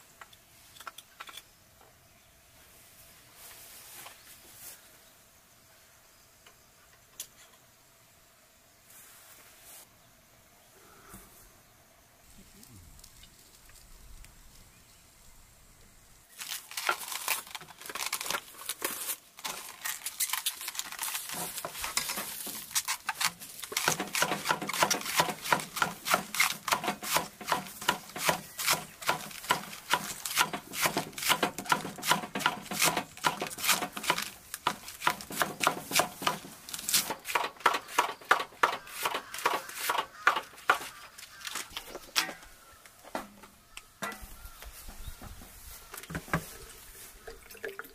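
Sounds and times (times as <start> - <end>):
knife chopping on wooden board: 23.8 - 36.5.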